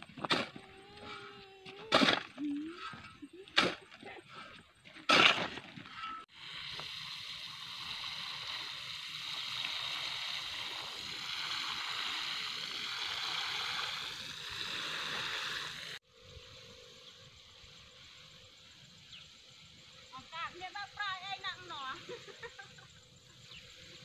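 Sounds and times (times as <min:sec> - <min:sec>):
faint outdoor background: 0:00.0 - 0:24.0
watering can water spraying: 0:06.3 - 0:24.0.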